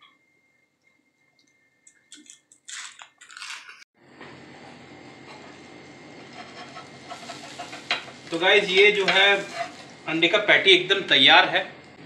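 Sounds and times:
plastic wrapper crinkling: 2.1 - 3.8
eggs sizzling on hot griddle: 5.2 - 10.8.

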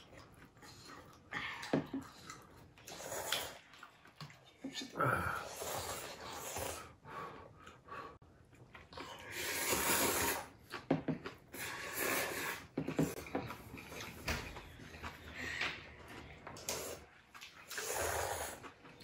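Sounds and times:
noodles being slurped: 2.0 - 7.0, 8.9 - 14.2, 16.1 - 19.0.

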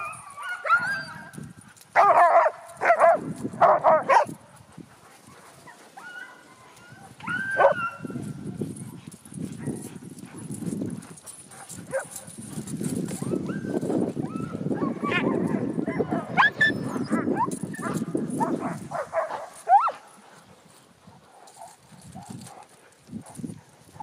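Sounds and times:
huskies barking: 0.0 - 1.1, 1.8 - 4.4, 5.1 - 8.3, 11.2 - 20.2
dog yelp: 0.0 - 1.3, 6.0 - 8.2, 13.2 - 18.0
dog sled swishing over snow: 0.0 - 24.0.

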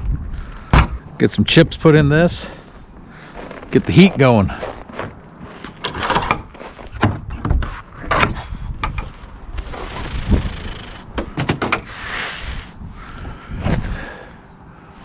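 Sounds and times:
wooden door and latches clunking: 5.8 - 9.1, 11.0 - 11.9.

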